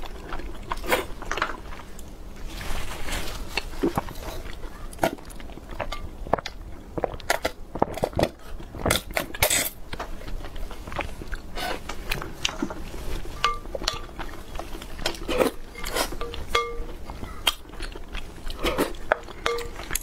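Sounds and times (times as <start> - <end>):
chewing and sipping: 0.0 - 2.7, 3.4 - 20.0
glass clinks: 16.2 - 16.9.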